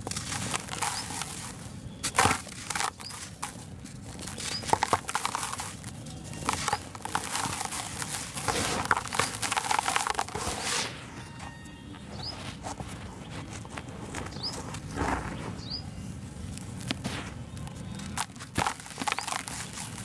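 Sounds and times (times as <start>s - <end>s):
cement lump crunching by hand: 0.0s - 10.8s, 12.2s - 20.0s
gritty powder pouring: 0.0s - 10.9s, 18.1s - 20.0s.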